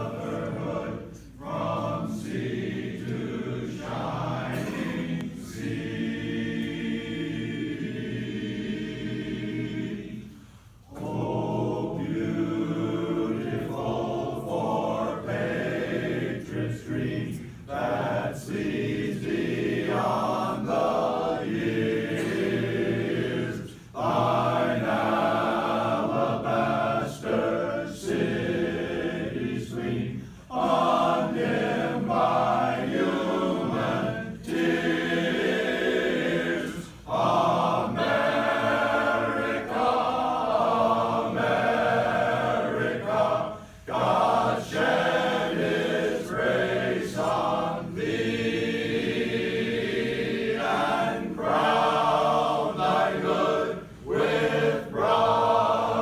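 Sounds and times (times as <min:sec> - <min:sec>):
men's chorus singing a cappella: 0:00.0 - 0:56.0
singers breathing: 0:10.3 - 0:10.9, 0:23.6 - 0:24.0, 0:30.1 - 0:30.5, 0:43.5 - 0:43.9.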